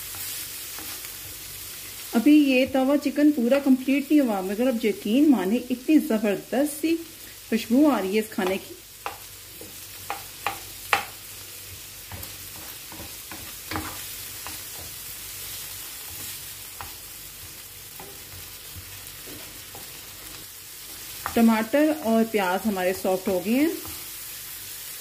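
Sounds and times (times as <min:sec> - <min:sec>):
vegetables sizzling in oil: 0:00.0 - 0:25.0
spatula tapping on pan: 0:08.4 - 0:11.2, 0:12.0 - 0:15.0
spatula scraping a pan: 0:09.2 - 0:21.6.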